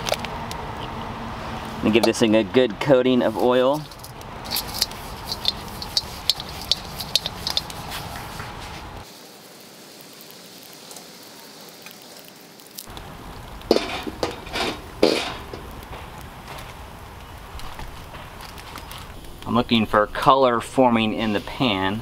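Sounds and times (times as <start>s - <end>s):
paper towel scratching wok: 3.2s - 9.0s, 13.7s - 15.6s
wok clanking on stove: 3.9s - 8.3s, 13.7s - 16.1s.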